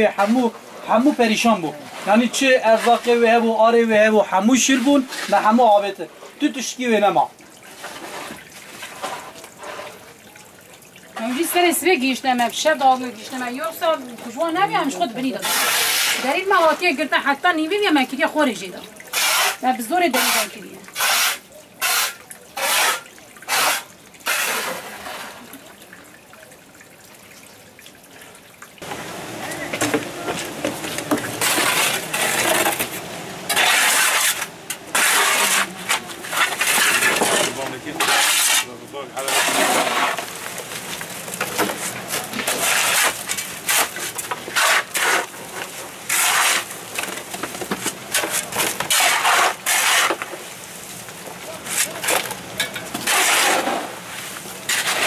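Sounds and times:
floodwater splashing: 0.0 - 55.0
shovels scraping wet gravelly mud: 0.1 - 5.6, 7.7 - 10.1, 14.2 - 17.0, 19.1 - 25.5, 30.7 - 55.0.

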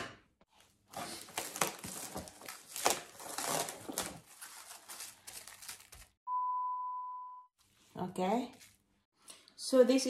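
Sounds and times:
cling wrap crinkling: 1.1 - 6.2.

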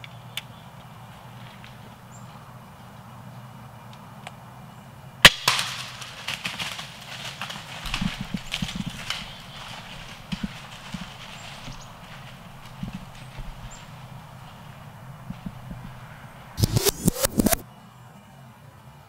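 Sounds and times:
hooves running through dry leaves: 0.1 - 3.0, 5.2 - 17.6.

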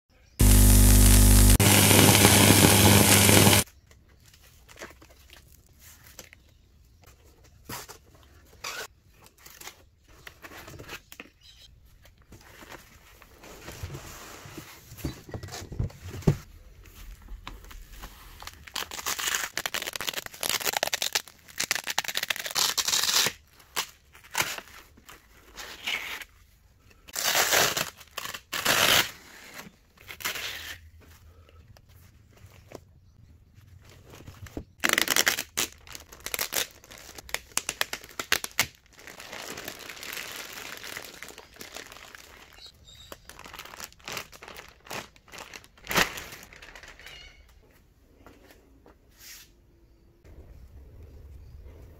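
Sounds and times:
static-like noise burst: 0.4 - 3.6
packaging tearing and crinkling: 0.4 - 3.7, 17.6 - 26.2, 27.1 - 30.8, 34.0 - 47.3.

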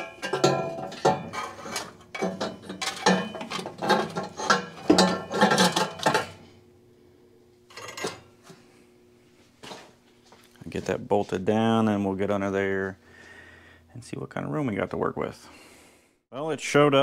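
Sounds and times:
metal exhaust header clanking: 0.0 - 6.5.

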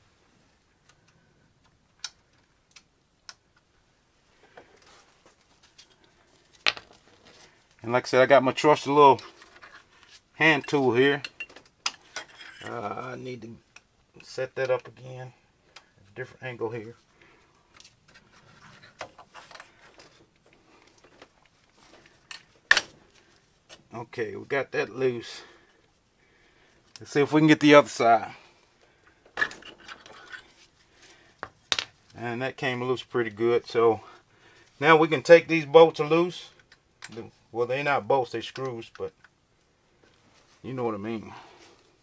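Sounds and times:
clicks of tools and metal parts: 10.6 - 12.8, 22.0 - 23.0, 29.2 - 30.6.

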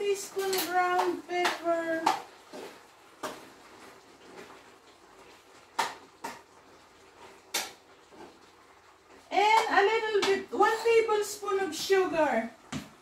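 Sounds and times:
cookware clinking and knocking: 0.4 - 0.8.

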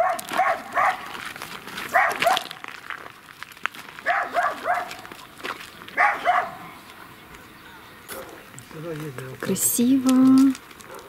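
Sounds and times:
dog barking: 0.0 - 1.1, 1.9 - 2.6, 4.0 - 5.0, 6.0 - 6.7, 8.1 - 8.4.

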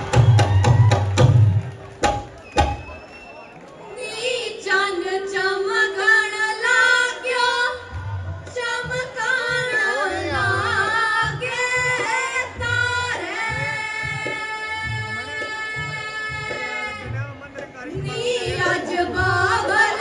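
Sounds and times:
low drum beat: 7.8 - 20.0.

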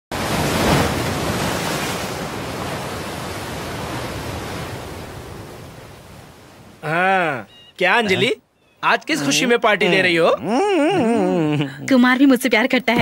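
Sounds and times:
ocean wave breaking and washing: 0.1 - 7.5.

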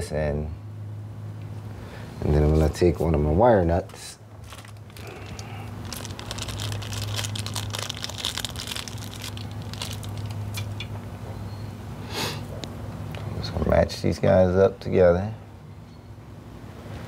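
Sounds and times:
steady low hum: 0.0 - 17.0
hands rustling small parts: 3.9 - 10.7.

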